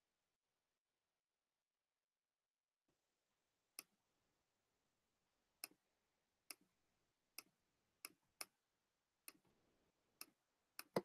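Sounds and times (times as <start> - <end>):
faint computer mouse clicks: 10.2 - 11.0.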